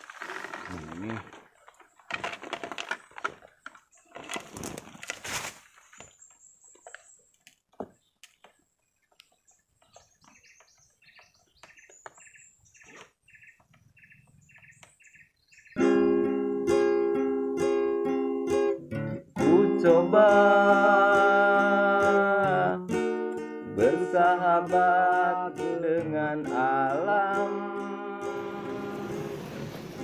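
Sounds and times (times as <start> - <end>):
faint bird chirps: 8.0 - 15.8
acoustic guitar music: 15.8 - 30.0.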